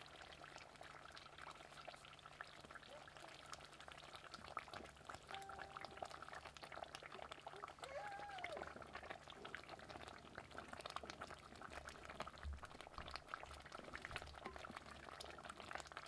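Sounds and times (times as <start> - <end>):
curry bubbling in a pot: 0.0 - 16.0
wooden spoon stirring curry: 13.5 - 16.0.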